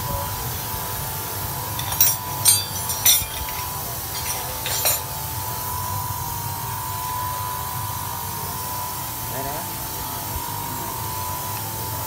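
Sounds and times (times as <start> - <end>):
steady high hum: 0.0 - 12.0
metal tools clinking: 1.7 - 5.2.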